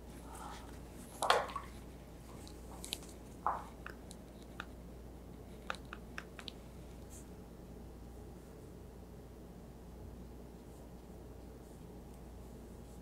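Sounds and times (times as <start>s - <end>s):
wet brush squishes: 0.6s - 7.3s.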